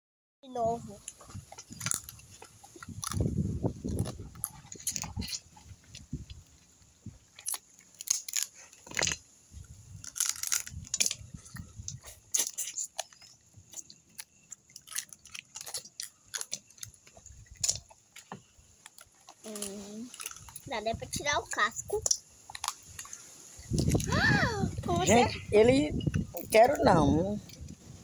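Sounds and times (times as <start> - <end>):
wet chewing: 1.0 - 24.2
crab shell cracking: 7.3 - 9.2, 10.0 - 20.7, 22.0 - 24.1.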